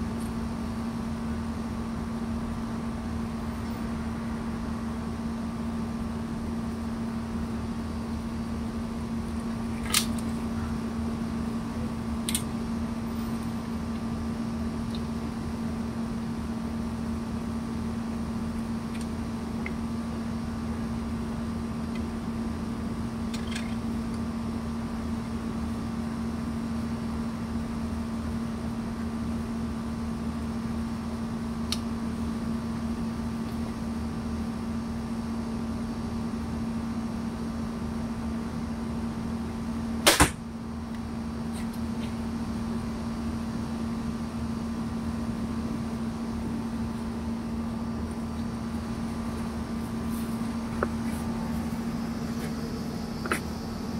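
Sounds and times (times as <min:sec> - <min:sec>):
steady low hum: 0:00.0 - 0:53.9
crossbow string snap: 0:40.0 - 0:40.4.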